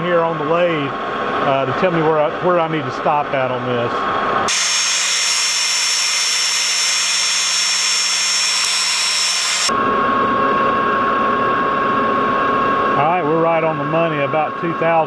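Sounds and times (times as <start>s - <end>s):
metal lathe cutting: 4.4s - 9.8s.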